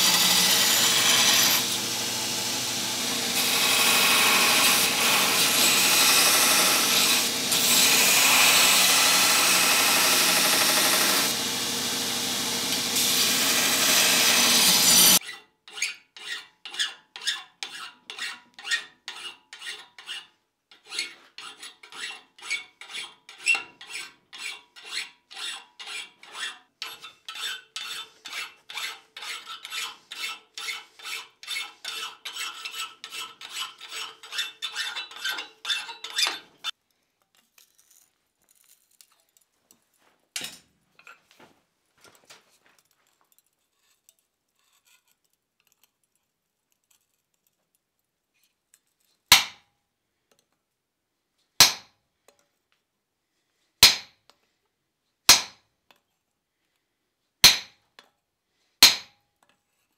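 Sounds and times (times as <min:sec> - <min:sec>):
hand file rasping: 0:00.0 - 0:01.7, 0:13.5 - 0:36.8
belt grinder grinding iron: 0:00.0 - 0:15.2.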